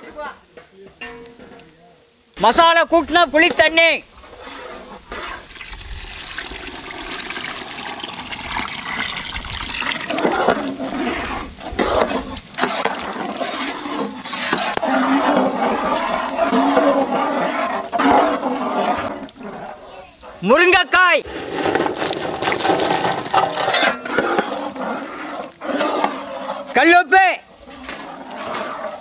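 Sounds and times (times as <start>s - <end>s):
liquid pouring into a pot: 5.4s - 14.0s, 21.3s - 26.7s.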